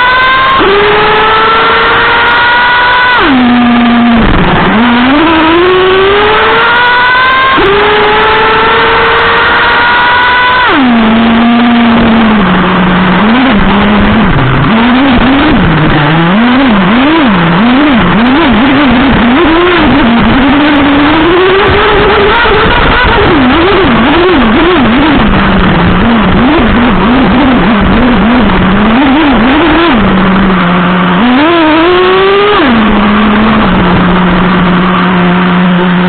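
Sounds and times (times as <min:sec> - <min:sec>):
small two-stroke engine revving: 0:00.0 - 0:36.0.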